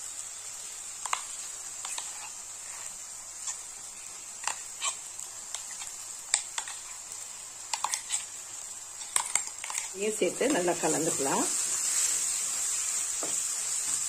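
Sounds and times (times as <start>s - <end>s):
spoon scraping metal bowl: 7.7s - 8.3s, 9.0s - 10.0s.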